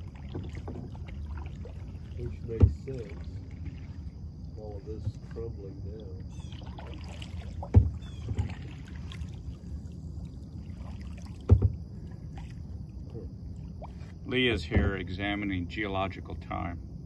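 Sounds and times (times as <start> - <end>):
steady low rumble: 0.0 - 17.0
dull knocks on plastic kayak: 2.5 - 3.0, 7.6 - 8.7, 11.4 - 11.8, 14.7 - 15.0.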